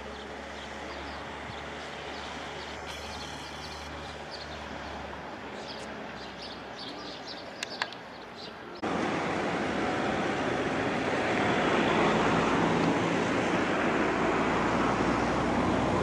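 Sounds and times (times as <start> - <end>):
small birds chirping: 0.0 - 8.8
sharp clicks: 7.6 - 8.0.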